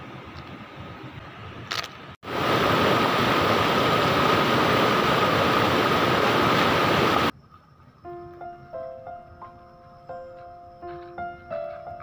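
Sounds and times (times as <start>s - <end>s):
outdoor background noise: 0.0s - 12.0s
water rushing over rocks: 2.2s - 7.3s.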